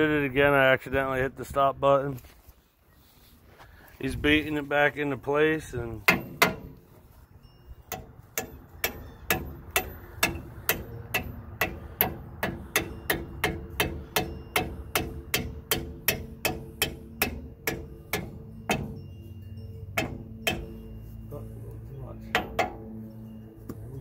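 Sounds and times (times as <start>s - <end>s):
hammer striking metal: 6.0s - 6.8s, 7.9s - 21.4s, 22.2s - 23.0s.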